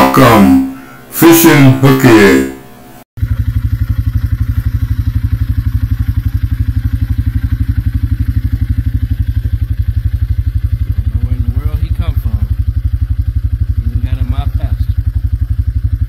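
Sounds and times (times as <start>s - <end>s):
small engine idling: 3.2s - 16.0s.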